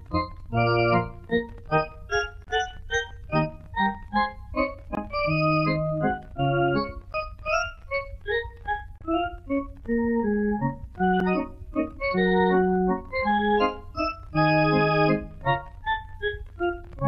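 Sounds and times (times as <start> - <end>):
organ music: 0.0 - 17.0.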